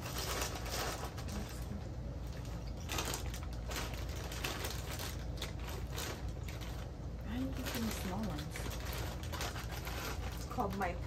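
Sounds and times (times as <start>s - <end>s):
chip bag crinkling: 0.0s - 11.0s
chips crunching: 2.3s - 11.0s.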